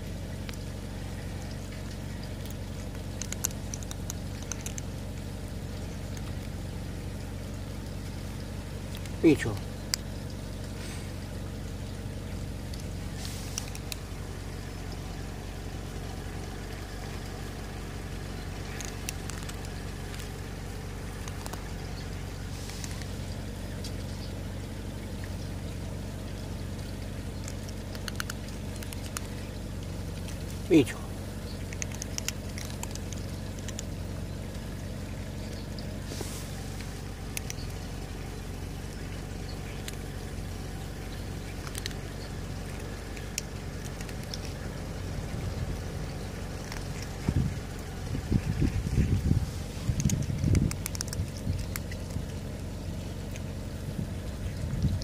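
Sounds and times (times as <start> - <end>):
low motor hum: 0.0 - 55.0
cat crunching dry kibble: 0.1 - 55.0
faint sharp clicks: 49.9 - 53.5.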